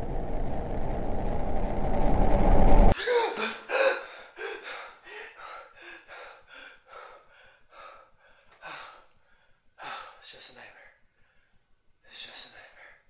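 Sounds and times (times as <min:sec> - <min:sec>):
man gasping: 0:03.0 - 0:10.2
man panting heavily: 0:03.0 - 0:10.2.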